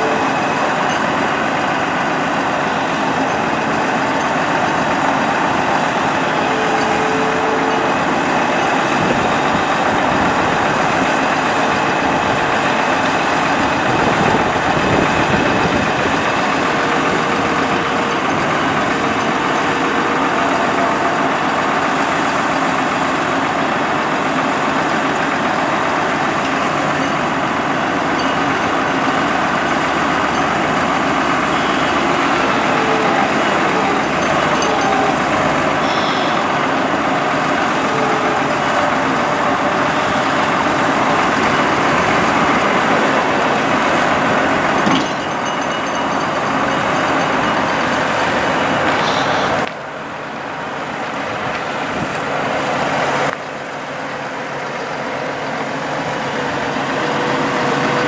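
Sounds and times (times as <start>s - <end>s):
truck engine running: 0.0s - 58.0s.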